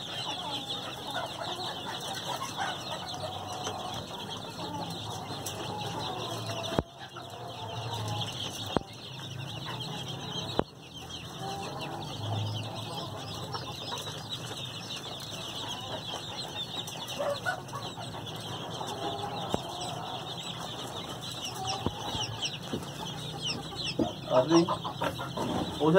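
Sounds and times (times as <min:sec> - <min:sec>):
chicks peeping: 0:00.0 - 0:25.9.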